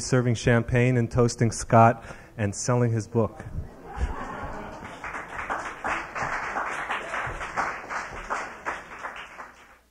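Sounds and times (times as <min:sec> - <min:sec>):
audience applauding: 0:03.9 - 0:09.9.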